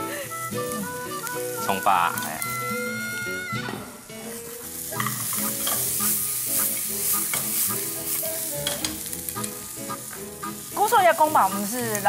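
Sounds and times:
shrimp sizzling in hot oil: 0.0 - 3.4, 4.0 - 12.0
chopsticks clicking against pan: 5.0 - 6.0, 6.6 - 10.2, 11.2 - 12.0.

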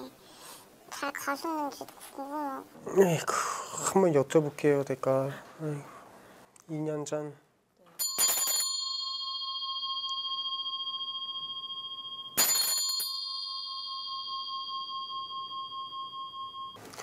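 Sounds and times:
metal hand bell ringing: 8.0 - 16.8.

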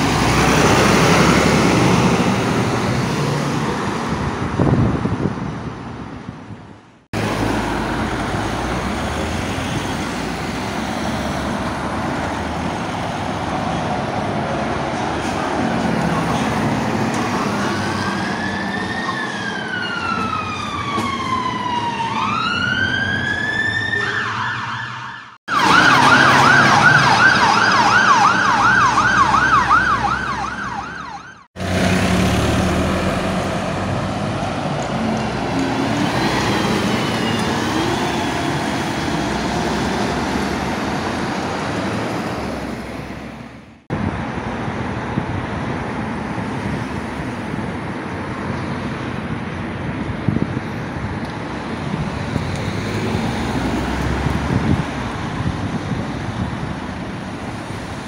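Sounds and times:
passing road traffic: 0.0 - 58.0
fire engine siren wailing and yelping: 16.1 - 31.5
faint distant siren: 17.3 - 31.5.

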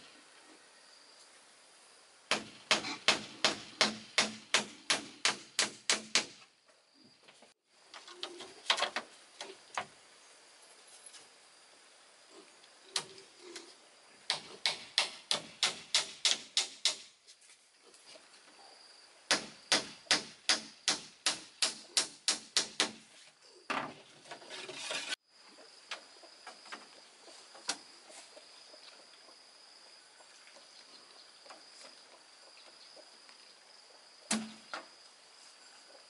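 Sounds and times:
rough scraping: 24.3 - 25.2.

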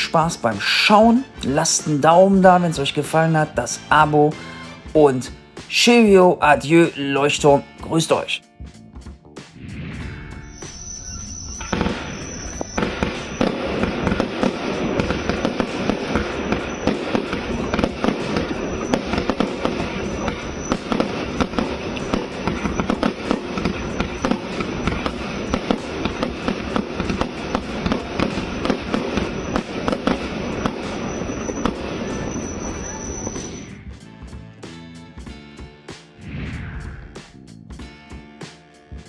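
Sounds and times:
firework battery firing: 9.7 - 33.8
firework crackle: 9.7 - 33.8.

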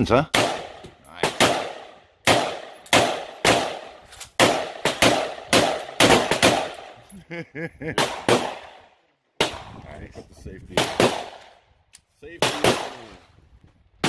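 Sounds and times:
rifle shots with echo: 0.3 - 7.0, 10.7 - 11.6, 12.4 - 13.2.

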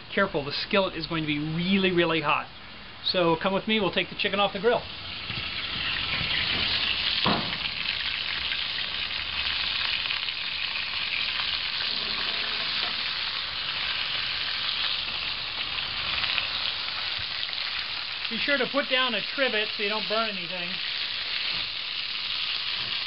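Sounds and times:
fat sizzling in a skillet: 4.9 - 23.0
sharp knock: 7.2 - 7.6.

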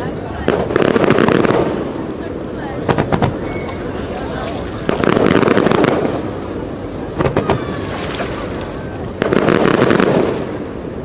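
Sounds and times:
firework booms: 0.3 - 2.2, 2.8 - 3.5, 4.8 - 6.4, 7.1 - 7.8, 9.2 - 10.9
crackling firework pops: 4.8 - 7.8.

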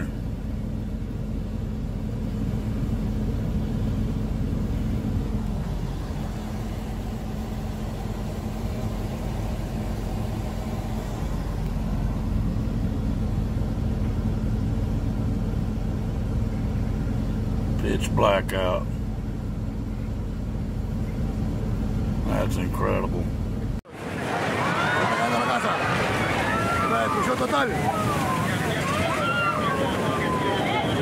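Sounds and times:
vehicle engine idling: 0.0 - 23.9.

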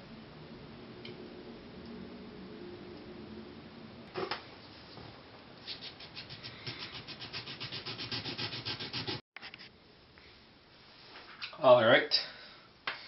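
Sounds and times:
file rasping on circuit board: 6.1 - 9.2.

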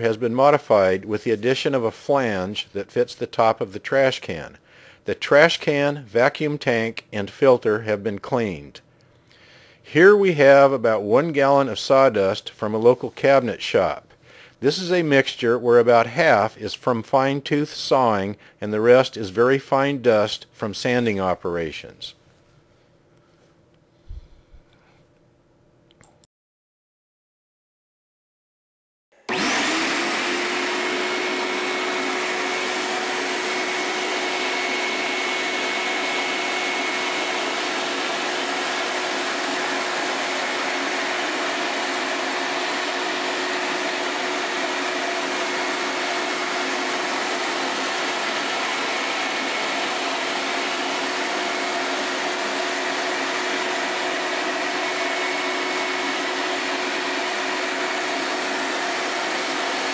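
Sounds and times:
shop vacuum humming: 29.3 - 59.9.

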